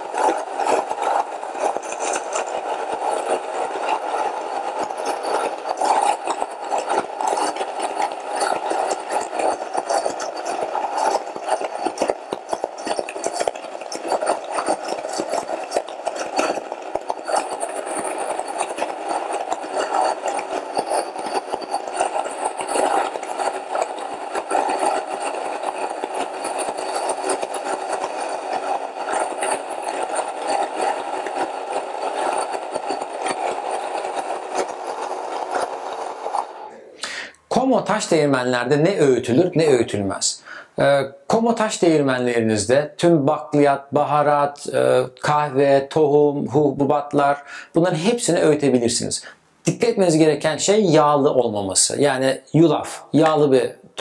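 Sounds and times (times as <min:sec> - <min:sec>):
grain mill motor: 0:00.0 - 0:40.6
crackle of grinding grain: 0:00.0 - 0:54.0.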